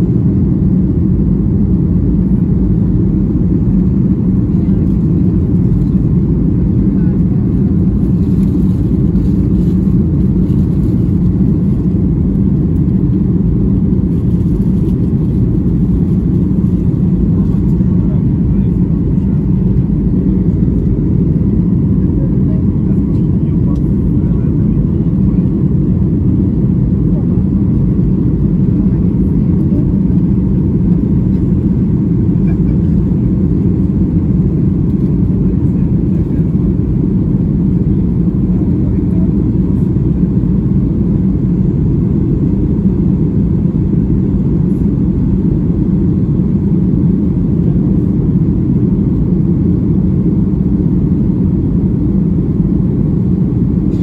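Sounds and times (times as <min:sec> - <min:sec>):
jet engines rumbling: 0:00.0 - 0:54.0.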